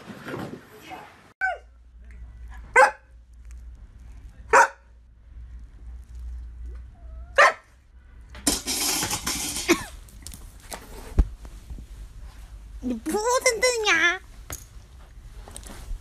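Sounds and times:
dog barking: 0:01.4 - 0:01.7, 0:02.6 - 0:03.2, 0:04.5 - 0:04.9, 0:07.3 - 0:07.7.

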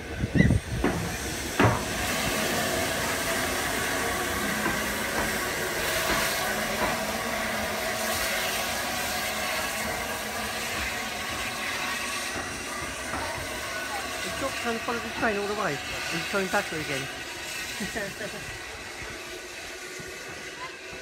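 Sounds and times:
hiss of steam: 0:00.0 - 0:21.0
steam locomotive running: 0:00.0 - 0:21.0.

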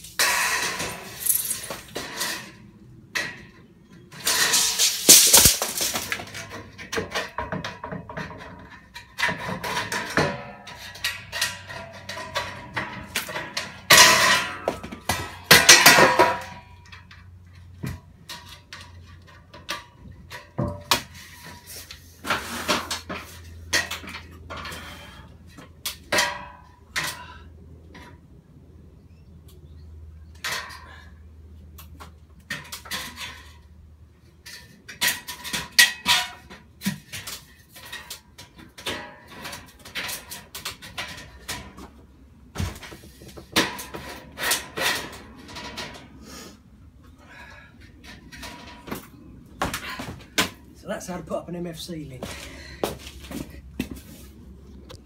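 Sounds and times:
metal strip clattering: 0:04.2 - 0:07.4.

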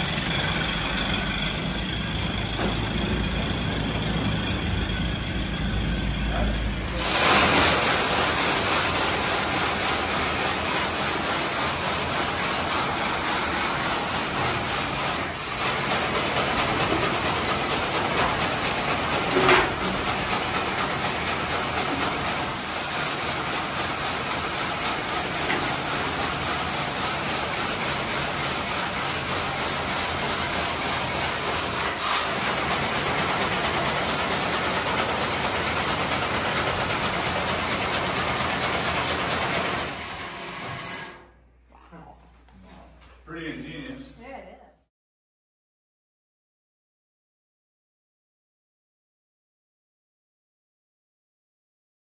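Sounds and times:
compressed air hissing: 0:06.9 - 0:09.6.

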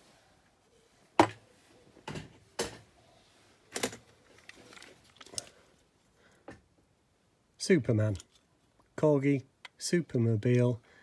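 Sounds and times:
faint rustling: 0:00.0 - 0:06.5.

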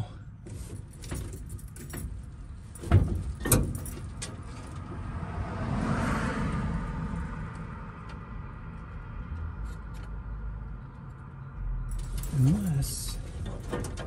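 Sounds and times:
car passing: 0:04.5 - 0:09.4.

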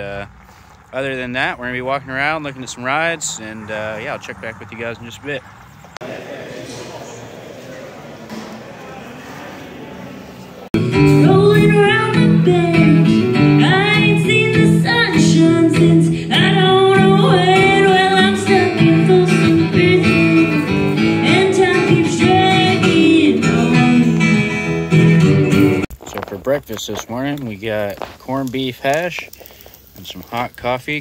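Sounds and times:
guitar accompaniment: 0:10.8 - 0:25.9
woman singing: 0:11.1 - 0:24.8.

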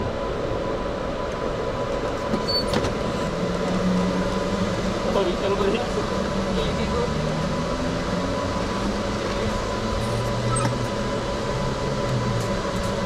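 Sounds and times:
electric go-kart motor hum: 0:02.7 - 0:13.0.

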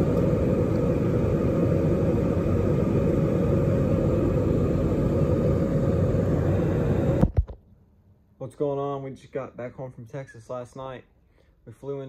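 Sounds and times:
airliner cabin rumble: 0:00.0 - 0:07.4.

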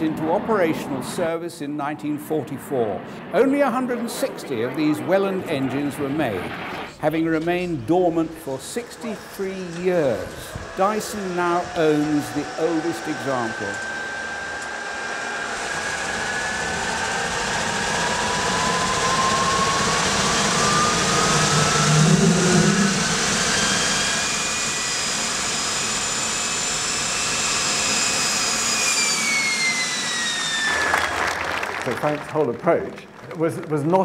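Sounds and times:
jet engine roar and whine: 0:00.0 - 0:33.2
low rumble: 0:02.4 - 0:25.2.

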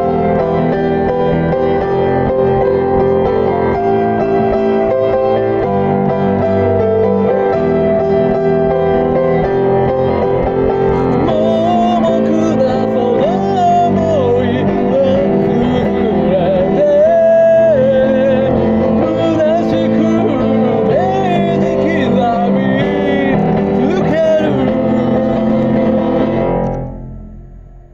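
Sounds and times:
piano playing slow chords: 0:00.0 - 0:27.9
person singing with vibrato: 0:09.8 - 0:26.9.

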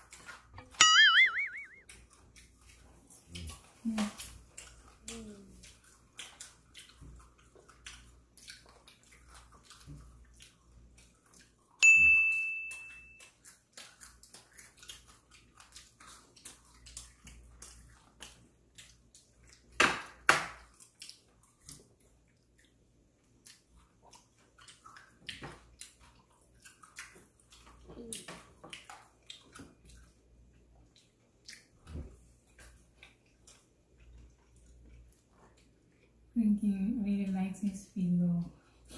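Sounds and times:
tableware clink: 0:11.8 - 0:13.2
crunching fried chicken: 0:13.2 - 0:35.8.

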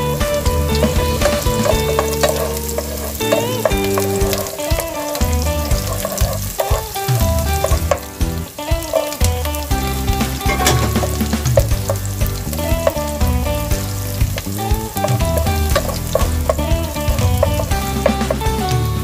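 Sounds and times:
background music: 0:00.0 - 0:19.0
onion and garlic sizzling in oil: 0:00.0 - 0:19.0
wooden spatula scraping pan: 0:00.6 - 0:08.1.

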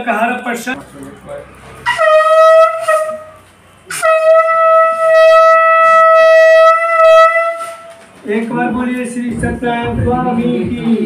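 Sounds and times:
conch shell blasts: 0:01.8 - 0:08.1.

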